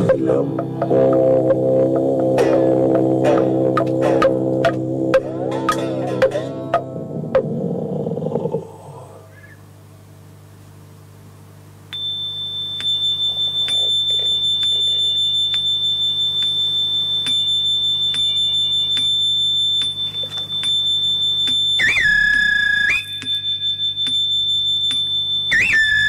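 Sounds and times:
high-pitched electronic tone: 0.0s - 7.6s
lower wavering tone: 0.0s - 9.7s, 11.9s - 26.0s
low electrical hum: 0.0s - 26.0s.

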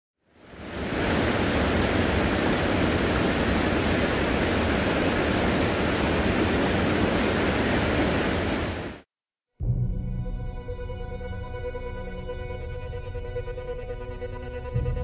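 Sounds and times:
whitewater rushing over rocks: 0.4s - 9.0s.

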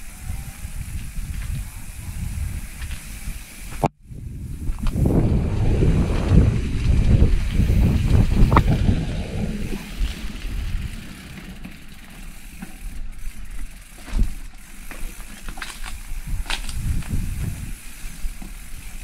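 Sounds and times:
motorcycle engine rumbling: 3.7s - 18.6s.

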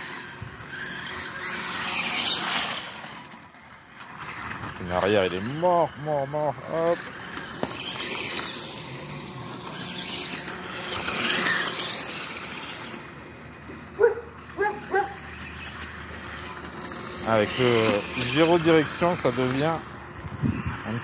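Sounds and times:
toy dirt bike motor on gravel: 0.0s - 21.0s
dog barking: 14.0s - 15.2s.

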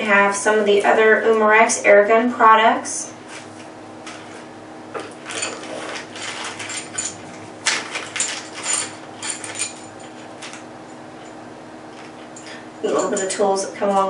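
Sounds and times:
plastic bag crinkling: 5.0s - 9.6s.

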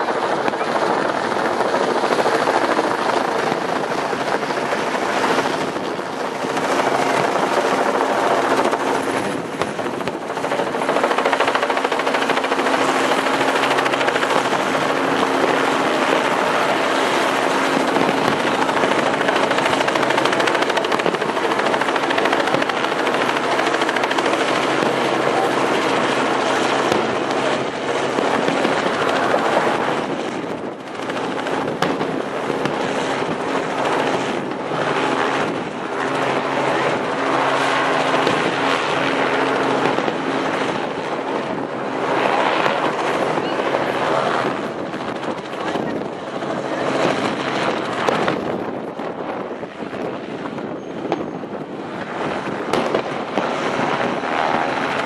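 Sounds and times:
fireworks bursting: 0.0s - 33.4s, 52.7s - 54.8s.

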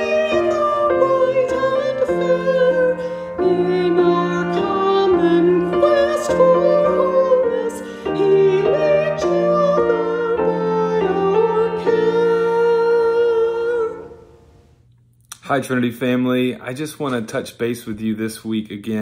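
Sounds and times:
person singing a hymn: 0.0s - 14.4s
keyboard accompaniment: 0.0s - 14.8s.

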